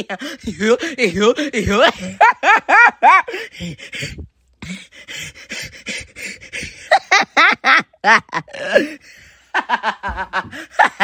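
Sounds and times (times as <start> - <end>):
breathy gasping pants: 0.0 - 2.2, 3.2 - 7.1, 8.5 - 9.5, 10.4 - 11.0
person laughing with squeaky yelps: 1.7 - 3.5, 6.1 - 9.0.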